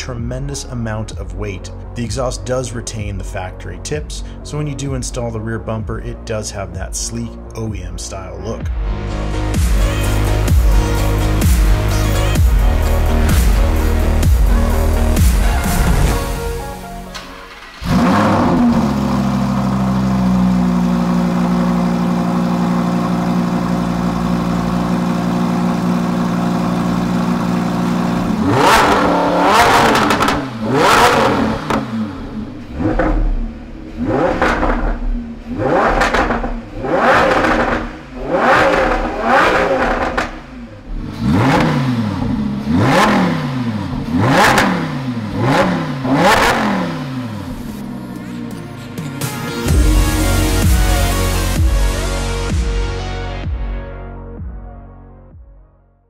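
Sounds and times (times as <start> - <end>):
sports car engine idling: 9.5 - 52.1
engine revving hard: 17.4 - 52.5.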